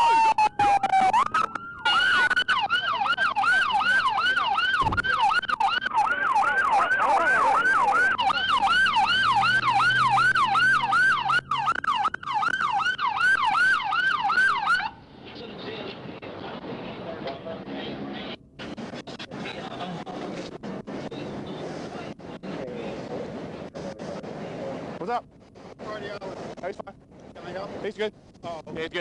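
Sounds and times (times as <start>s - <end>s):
police siren wailing and yelping: 0.0s - 15.0s.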